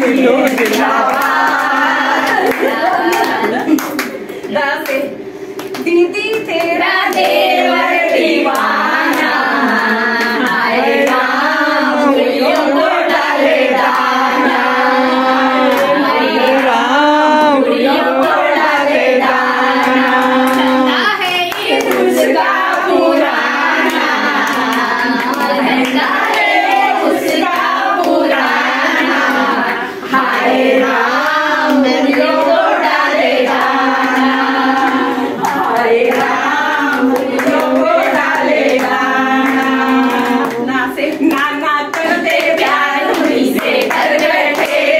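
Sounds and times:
women singing together: 0.0 - 44.9
hands clapping to beat: 0.4 - 7.5.

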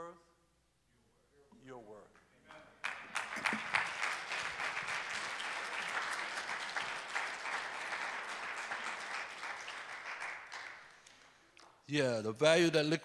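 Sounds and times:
crowd applauding: 2.8 - 11.4.

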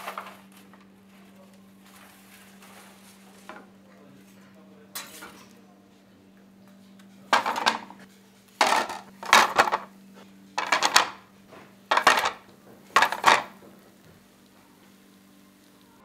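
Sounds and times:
kitchenware clinking: 7.3 - 9.9, 10.6 - 11.2, 11.9 - 13.9.

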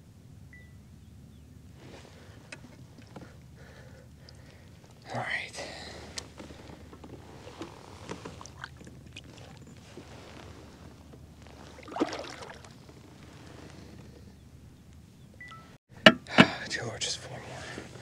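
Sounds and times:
water splashing: 8.0 - 9.6, 11.6 - 12.8.

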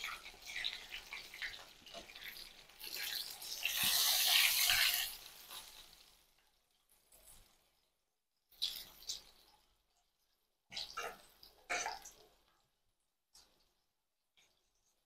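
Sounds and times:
deep-frying sizzle in hot oil: 0.0 - 9.9.

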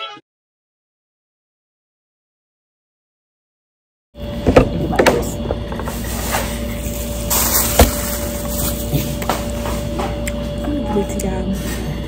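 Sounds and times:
steady room hum: 4.2 - 12.0.

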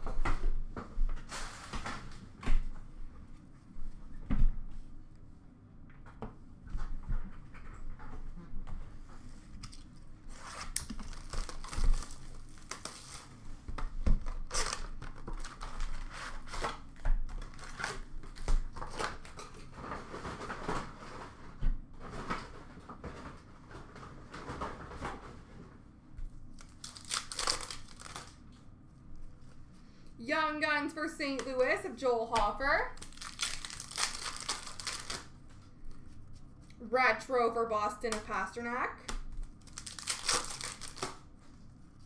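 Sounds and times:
plastic packs rustling: 10.4 - 13.5, 14.2 - 25.4, 26.6 - 28.4, 32.6 - 36.2, 39.4 - 41.4.

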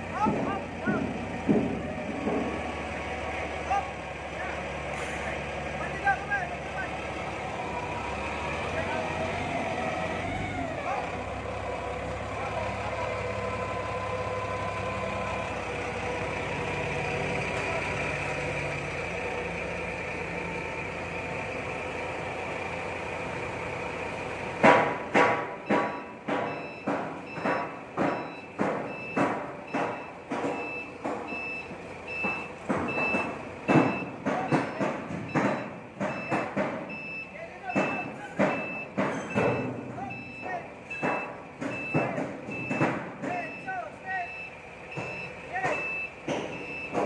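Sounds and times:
forklift engine running: 0.0 - 47.0
reverse alarm beeping: 25.6 - 47.0.

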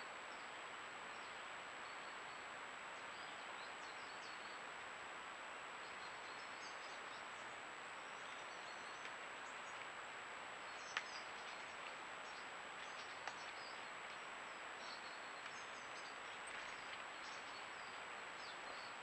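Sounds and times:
microphone hiss: 0.0 - 19.0
faint bird chirps: 10.6 - 19.0.

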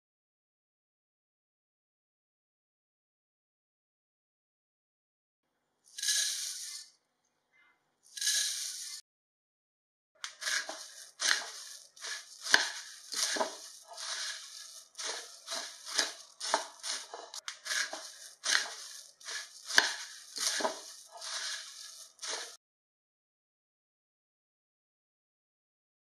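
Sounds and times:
puffed rice rustling in pan: 6.0 - 6.9, 8.2 - 9.0, 10.2 - 22.6
spatula knocking pan: 10.3 - 22.6.

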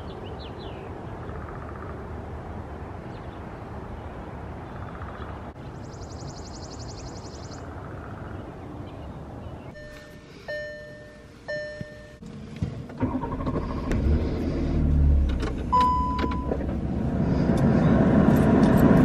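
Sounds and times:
car warning chime: 9.8 - 12.3, 15.7 - 16.6
car engine starting and running: 9.8 - 19.0.

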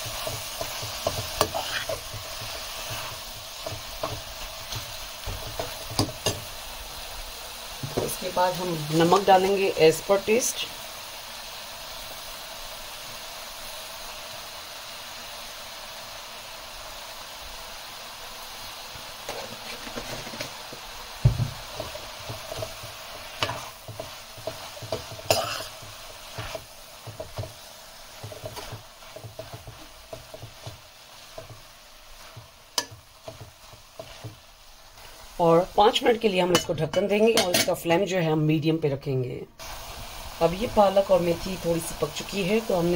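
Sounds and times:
spoon scraping and knocking pan: 0.0 - 6.6, 7.8 - 9.7, 19.2 - 35.2, 35.9 - 37.8
leaves sizzling in a pan: 0.0 - 42.9.

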